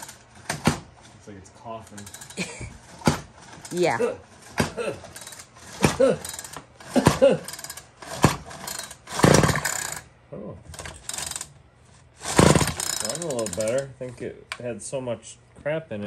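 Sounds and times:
men talking: 0:01.1 - 0:02.2, 0:13.0 - 0:16.0
string trimmer engine coughing: 0:02.1 - 0:03.3, 0:03.9 - 0:09.9.

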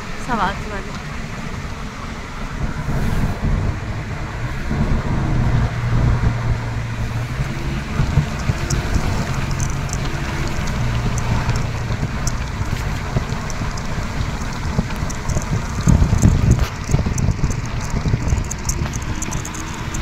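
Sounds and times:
engine and tyres rumbling: 0:00.0 - 0:20.0
road noise hiss: 0:00.0 - 0:20.0
light ticks: 0:07.9 - 0:20.0.

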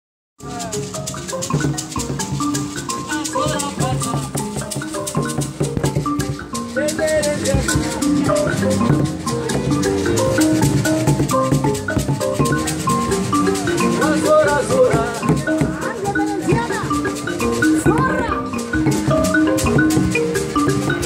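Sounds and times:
mbira plucked notes: 0:00.4 - 0:21.0
shaker rattle: 0:00.4 - 0:21.0
man singing: 0:06.8 - 0:07.7, 0:14.0 - 0:15.8.

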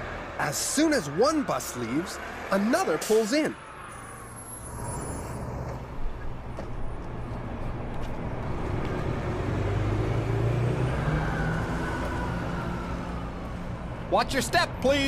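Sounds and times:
bus engine drone: 0:00.0 - 0:15.0.

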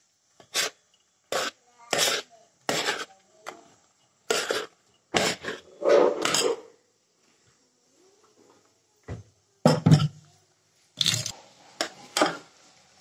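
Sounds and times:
metal spoon scraping steel pot: 0:04.3 - 0:06.6.

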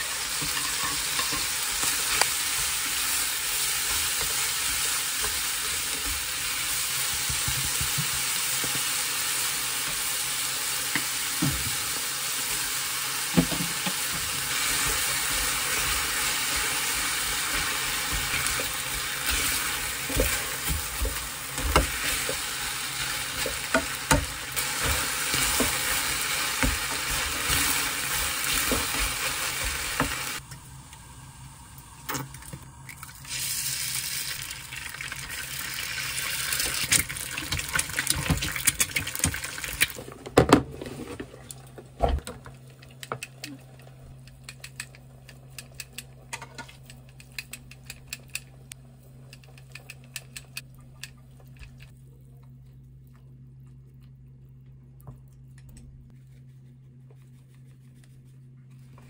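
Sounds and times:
food sizzling in a frying pan: 0:00.0 - 0:32.1, 0:32.7 - 0:40.1.

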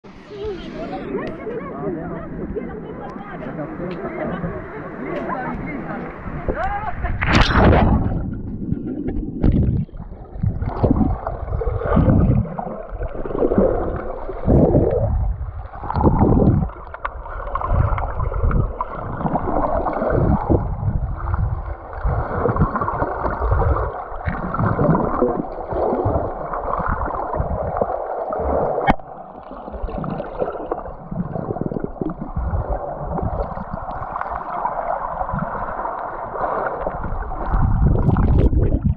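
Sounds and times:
muffled underwater water rumbling: 0:00.0 - 0:38.9.

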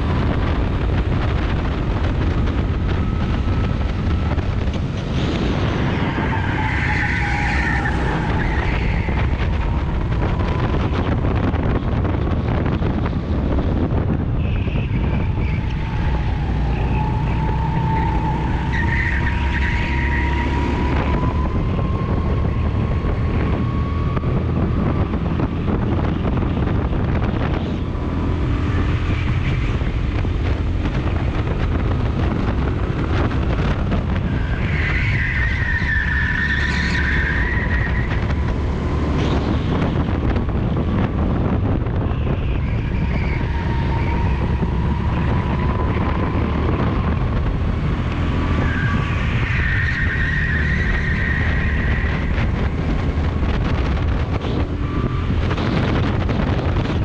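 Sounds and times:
wind rush on microphone: 0:00.0 - 0:57.0.

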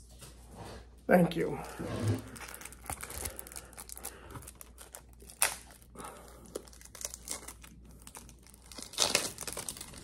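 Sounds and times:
wrapper crinkling: 0:02.2 - 0:10.0
wrapper ripping: 0:02.2 - 0:10.0.

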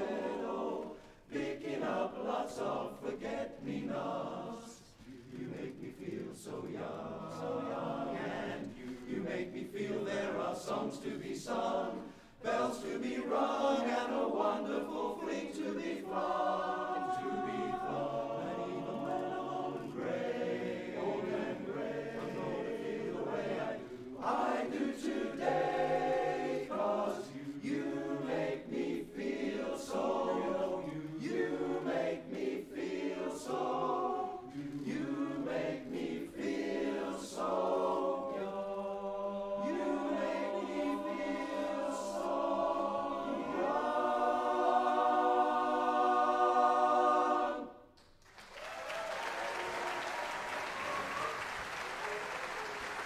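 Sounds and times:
male chorus singing a cappella: 0:00.0 - 0:47.9.

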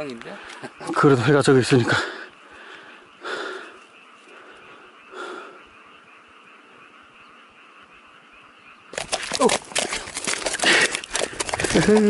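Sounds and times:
breathy huffs: 0:01.9 - 0:05.7, 0:10.5 - 0:12.0.

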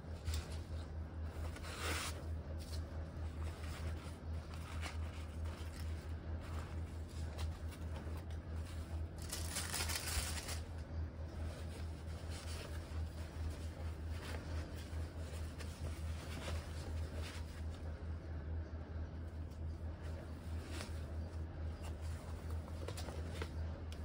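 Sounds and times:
steady low hum: 0:00.0 - 0:24.0
fabric pouch rustling: 0:00.1 - 0:10.7, 0:11.3 - 0:17.9.

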